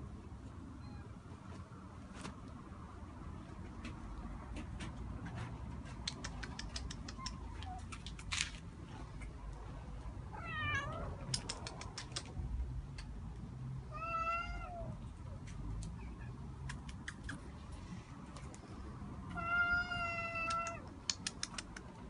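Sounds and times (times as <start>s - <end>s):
cat meowing: 10.3s - 11.2s, 13.9s - 15.0s, 19.3s - 20.8s.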